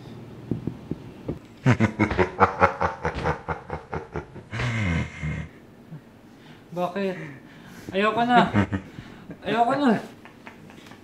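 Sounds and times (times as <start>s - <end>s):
man laughing: 1.6s - 5.6s, 8.2s - 11.0s.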